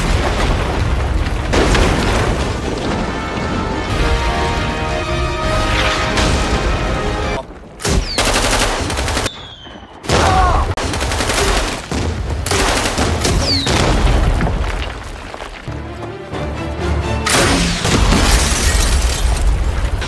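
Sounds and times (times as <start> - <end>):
explosion blasts: 0.0 - 4.0, 11.8 - 15.2.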